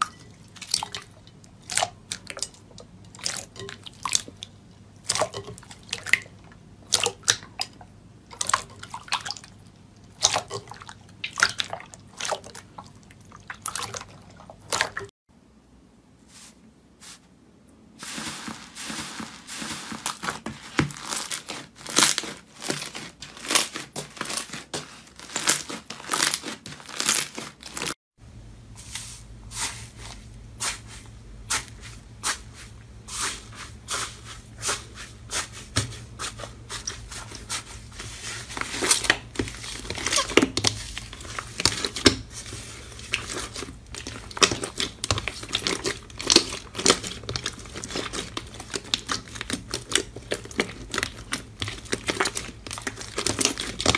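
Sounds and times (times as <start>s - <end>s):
slime squelching and popping: 0.2s - 15.1s, 18.0s - 28.0s, 36.7s - 53.9s
low steady hum: 28.2s - 53.9s.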